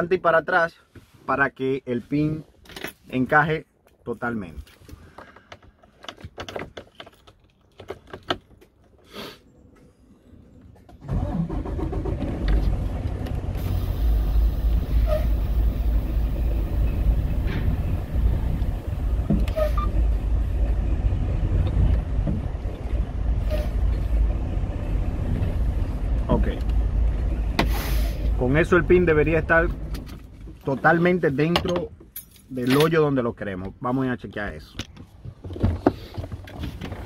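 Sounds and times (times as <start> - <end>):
diesel engine deep rumble: 9.6 - 32.2.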